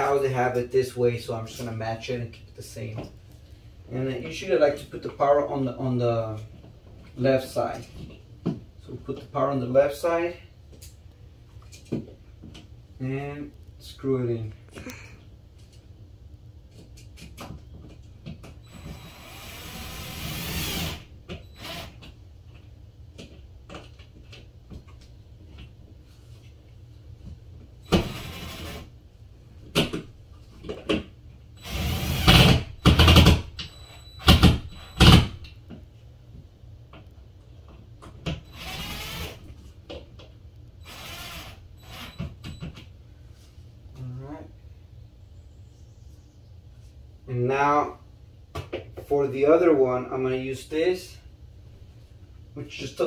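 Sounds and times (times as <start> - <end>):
cordless drill bursts: 18.6 - 22.0, 27.9 - 28.9, 31.6 - 35.3, 38.5 - 39.4, 40.8 - 42.2.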